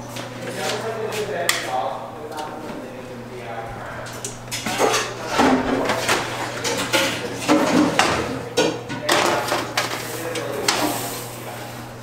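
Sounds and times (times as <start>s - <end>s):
baking sheet scraping oven racks: 4.0s - 11.9s.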